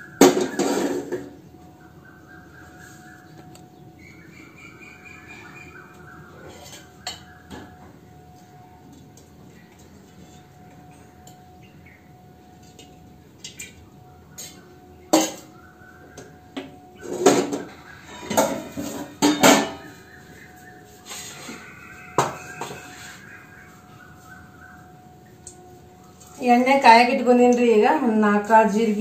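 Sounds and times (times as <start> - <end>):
metal dishes clanking: 0.2 - 1.3, 6.4 - 7.8, 14.4 - 15.6, 16.6 - 20.1.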